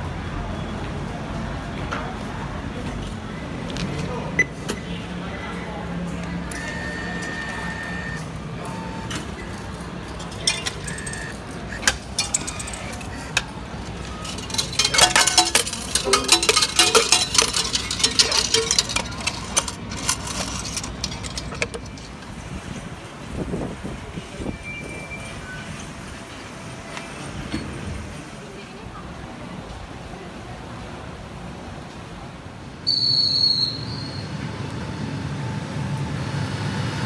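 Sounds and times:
vending machine beeps: 0:06.5 - 0:09.7, 0:10.3 - 0:19.0
coins clinking into tray: 0:09.4 - 0:22.4.

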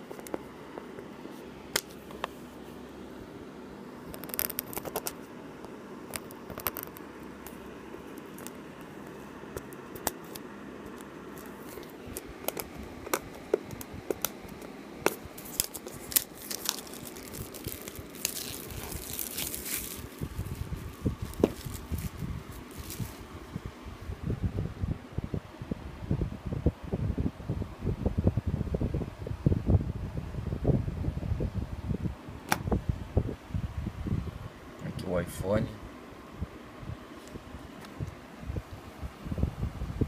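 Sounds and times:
plastic shrink-wrap crinkling: 0:04.2 - 0:05.2, 0:11.3 - 0:23.3
hands handling cardboard box: 0:11.3 - 0:23.2.

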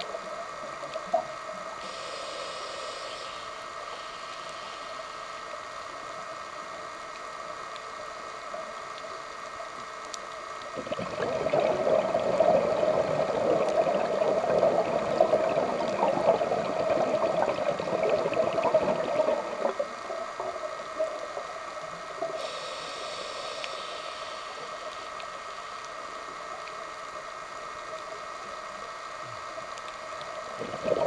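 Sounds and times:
underwater hum with crackle: 0:00.0 - 0:31.0
underwater bubbles gurgling: 0:08.4 - 0:23.8, 0:29.3 - 0:31.0.

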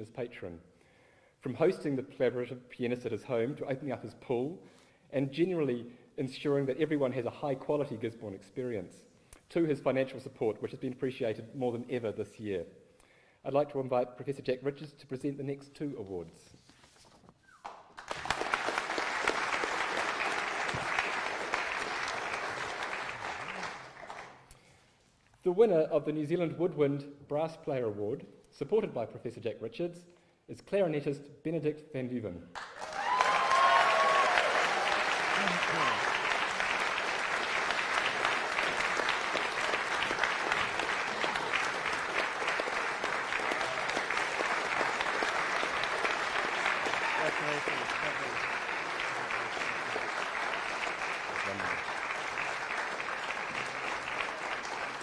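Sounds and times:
audience applause: 0:17.9 - 0:24.5, 0:32.6 - 0:55.0.

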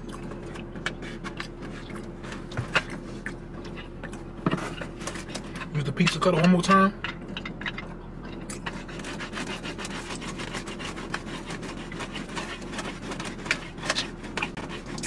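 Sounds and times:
pizza cutter scraping cardboard: 0:00.9 - 0:03.2, 0:04.4 - 0:06.4, 0:08.6 - 0:15.0.

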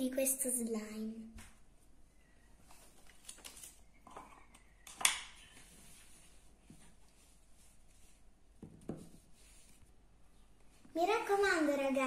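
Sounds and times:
soft handling at wooden table: 0:02.6 - 0:10.0.

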